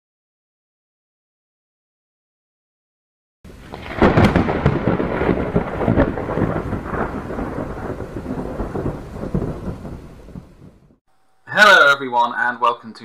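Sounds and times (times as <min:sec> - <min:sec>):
thunder rumbling with crackles: 0:03.5 - 0:11.0
thunderclap crack: 0:03.5 - 0:11.0.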